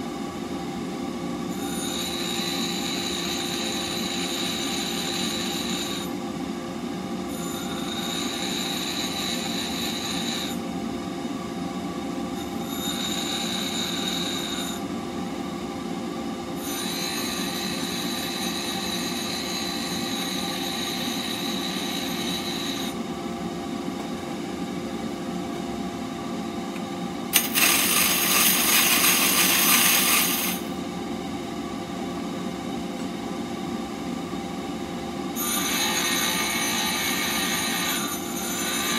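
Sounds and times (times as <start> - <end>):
steel grinding on wheel: 7.4 - 10.6, 12.4 - 14.8, 16.6 - 23.0, 27.4 - 30.7, 35.6 - 38.9
bench grinder motor hum: 27.3 - 30.8.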